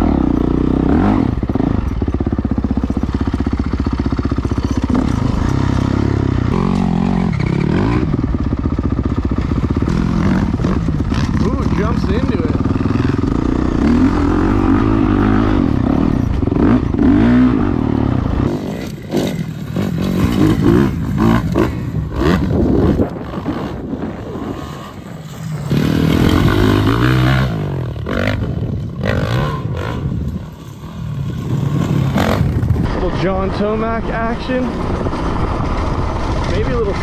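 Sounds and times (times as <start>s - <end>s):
dirt bike engines revving: 0.0s - 37.0s
dirt and gravel scattering: 18.5s - 23.2s.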